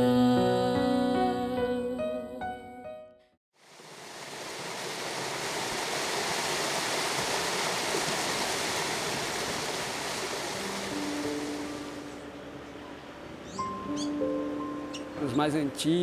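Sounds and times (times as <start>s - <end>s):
water rushing over rocks: 3.6s - 12.2s.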